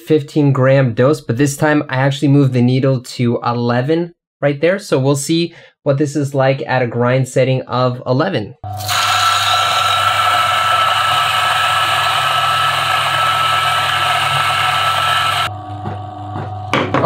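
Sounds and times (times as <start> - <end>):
coffee grinder whining and rasping: 8.7 - 15.5.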